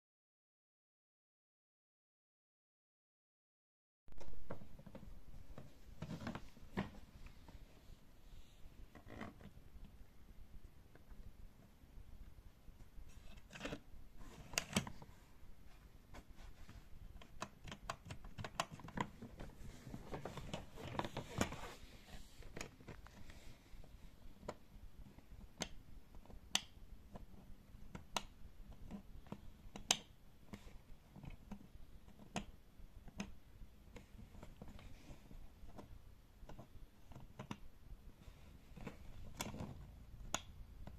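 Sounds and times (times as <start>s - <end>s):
rubbing and handling noise: 4.2s - 27.9s, 28.6s - 40.9s.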